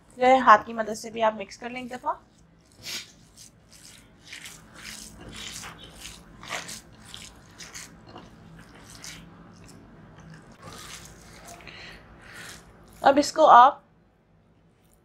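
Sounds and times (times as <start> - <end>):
hand squelching raw mince: 1.5 - 13.1.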